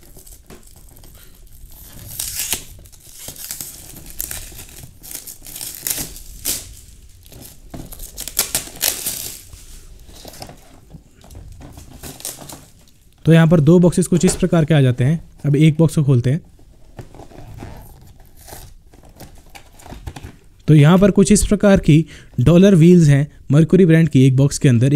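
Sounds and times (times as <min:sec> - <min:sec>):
plastic shrink wrap tearing and crinkling: 0:00.0 - 0:13.3, 0:16.8 - 0:20.6.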